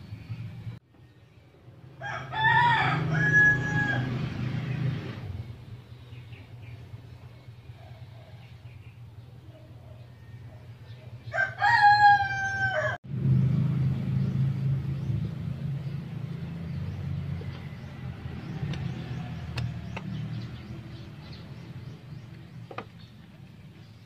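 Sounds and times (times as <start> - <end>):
rooster crowing: 2.0 - 4.3, 11.2 - 13.0.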